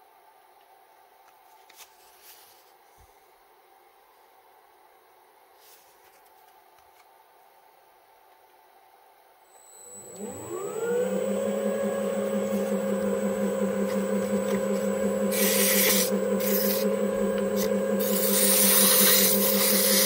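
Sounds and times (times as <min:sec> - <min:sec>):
lathe motor whining: 0:09.6 - 0:20.0
sandpaper scraping: 0:15.3 - 0:16.9, 0:17.6 - 0:20.0.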